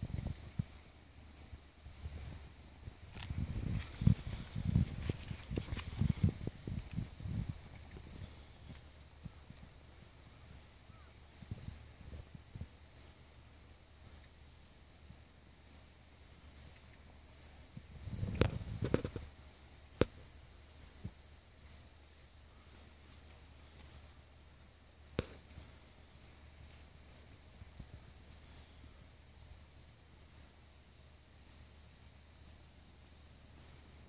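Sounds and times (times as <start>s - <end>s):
brief rustle: 3.1s - 7.0s.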